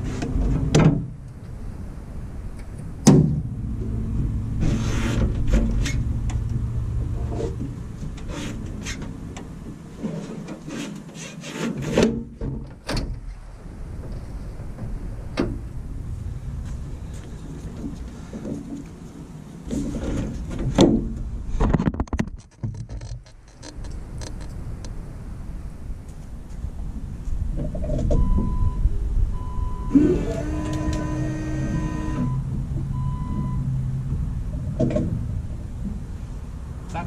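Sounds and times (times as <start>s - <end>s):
clicks knocks and rubbing: 19.7s - 24.6s.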